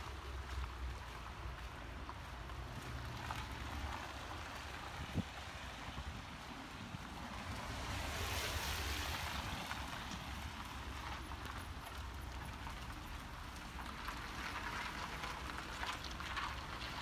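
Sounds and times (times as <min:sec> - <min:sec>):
low traffic rumble: 0:00.0 - 0:17.0
car tyres hissing on wet road: 0:02.6 - 0:17.0.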